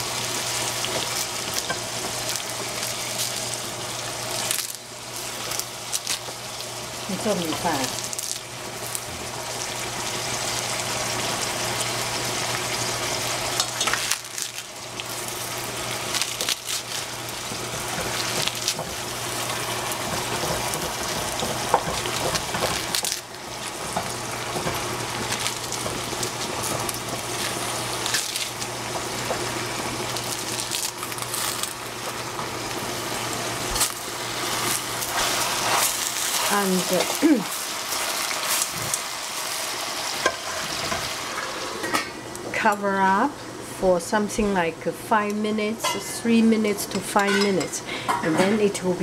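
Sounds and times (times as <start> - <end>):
greens sizzling in hot oil: 0.0 - 42.6.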